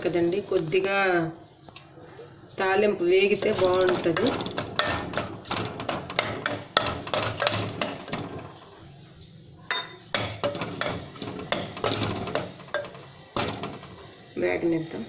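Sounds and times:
spices frying: 0:00.0 - 0:15.0.

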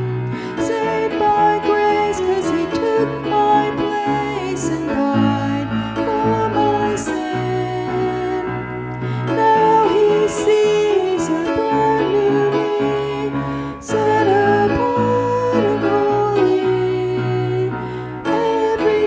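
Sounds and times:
instrumental accompaniment with strings: 0:00.0 - 0:19.0
slow hymn melody: 0:00.0 - 0:19.0.

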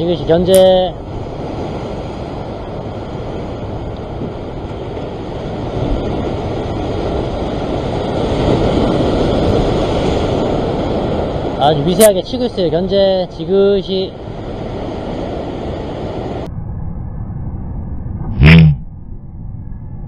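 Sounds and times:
rough sea surging against rocks: 0:00.0 - 0:16.5.

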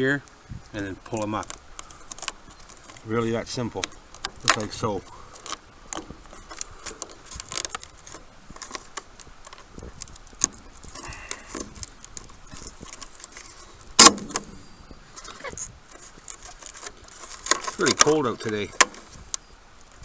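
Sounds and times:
plastic plugs clicking and rattling: 0:01.1 - 0:03.1, 0:03.7 - 0:14.5, 0:15.2 - 0:19.1
loud plastic snap: 0:14.0 - 0:14.6.

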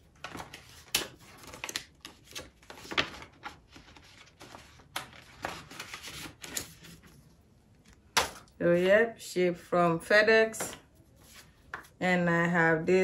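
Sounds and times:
paper rustling: 0:00.0 - 0:07.9, 0:11.1 - 0:12.0.

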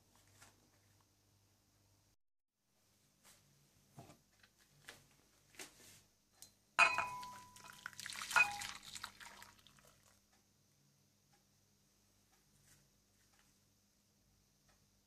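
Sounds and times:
pan knocking on hob: 0:06.8 - 0:07.6
coffee pouring into a bowl: 0:06.8 - 0:10.2.

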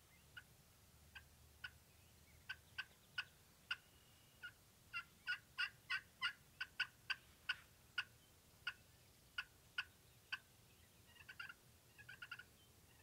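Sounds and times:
turkey clucking: 0:01.1 - 0:01.8, 0:02.4 - 0:08.8, 0:09.4 - 0:10.5, 0:11.1 - 0:13.0.

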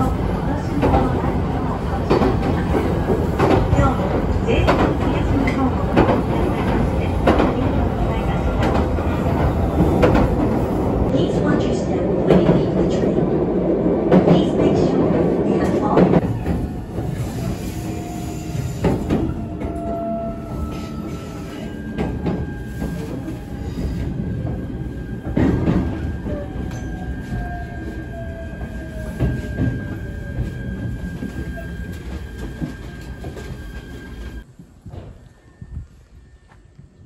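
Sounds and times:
train clunks: 0:00.0 - 0:11.2, 0:14.1 - 0:27.7
train wheels rumbling on rail: 0:00.0 - 0:36.1.

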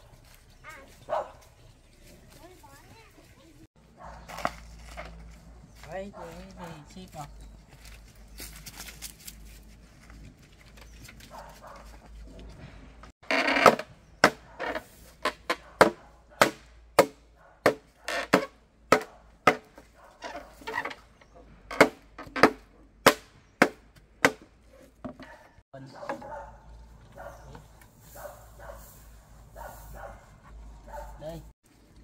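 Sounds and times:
blade chopping wood: 0:13.4 - 0:14.5, 0:15.2 - 0:19.9, 0:21.7 - 0:24.5.

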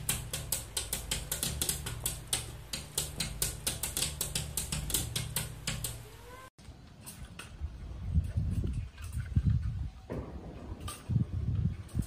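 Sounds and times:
rapid irregular clicking: 0:00.0 - 0:06.2.

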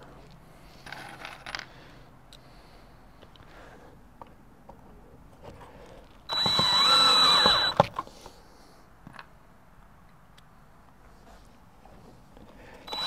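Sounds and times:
cordless drill whining: 0:06.3 - 0:07.9
sharp clicks: 0:06.3 - 0:08.0.

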